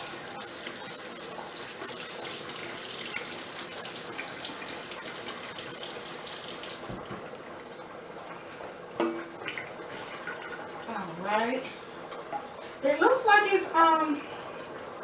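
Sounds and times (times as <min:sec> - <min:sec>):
faucet running: 0:00.0 - 0:07.2.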